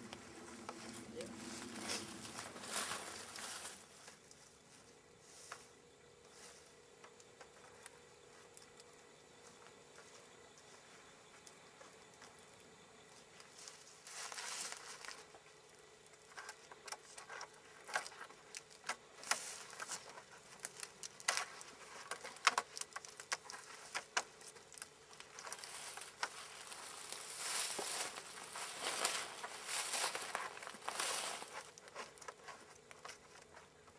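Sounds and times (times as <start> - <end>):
vine lashing rustling and crackling: 13.4 - 33.9.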